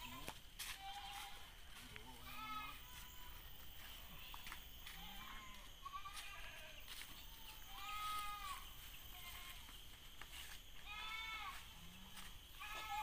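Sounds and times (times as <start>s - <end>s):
goat bleating: 0.0s - 3.4s, 4.0s - 9.7s, 10.8s - 11.7s, 12.6s - 13.0s.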